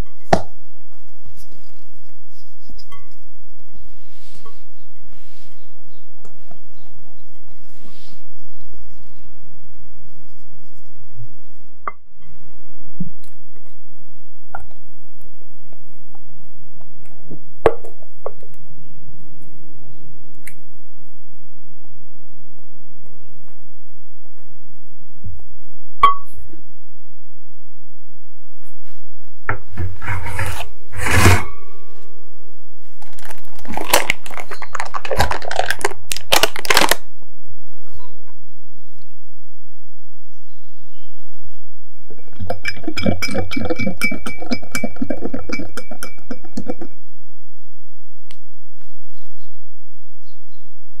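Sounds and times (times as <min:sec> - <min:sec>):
parchment paper rustling: 0:33.0 - 0:37.0
whisk in glass bowl: 0:42.2 - 0:47.0.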